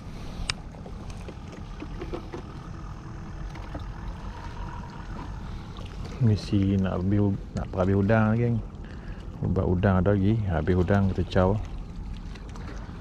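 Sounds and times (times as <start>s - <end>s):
wind and sea rumble: 0.0s - 13.0s.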